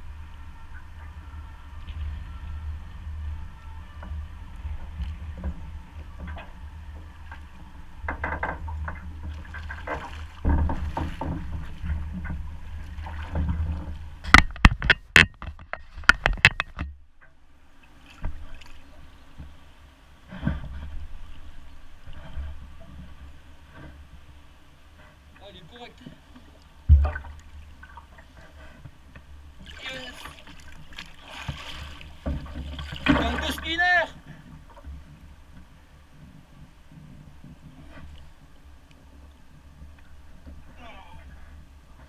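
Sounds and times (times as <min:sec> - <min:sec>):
river water lapping: 0:00.0 - 0:14.8, 0:15.6 - 0:42.0
low wind rumble: 0:00.0 - 0:42.0
sharp knocks and splashes: 0:06.2 - 0:19.6, 0:26.1 - 0:35.7.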